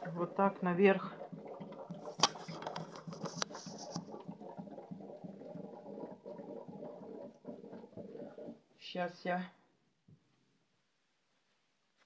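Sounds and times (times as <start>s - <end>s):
water gurgling and glugging: 0.0s - 8.7s.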